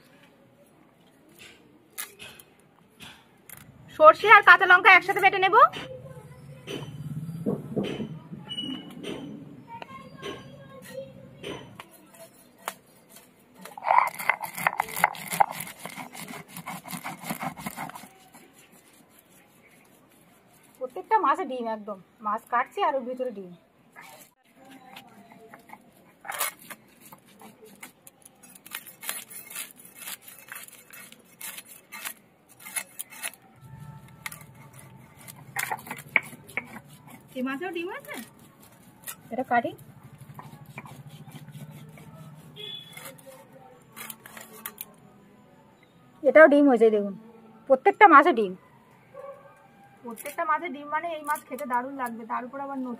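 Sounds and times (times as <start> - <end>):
stone roller crunching mustard seeds: 10.2 - 21.2, 24.0 - 45.0
fish scraped against blade: 11.7 - 20.6, 26.2 - 33.4, 40.2 - 44.9.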